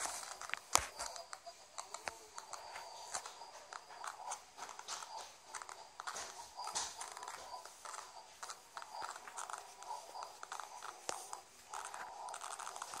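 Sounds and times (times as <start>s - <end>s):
faint steady tone: 0.0s - 13.0s
rapid clicks and clattering: 0.0s - 13.0s.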